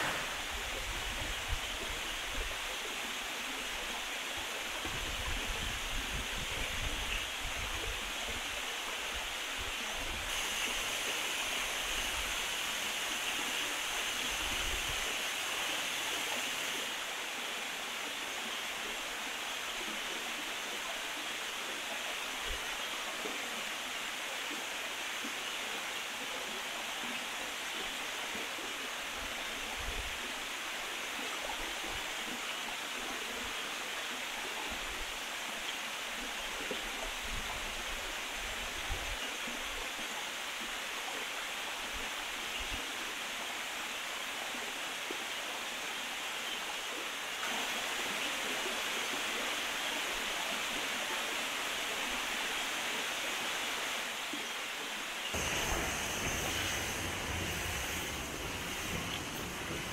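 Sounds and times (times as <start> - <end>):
stream rushing over rocks: 0.0 - 59.9
low rumbling: 55.4 - 59.9.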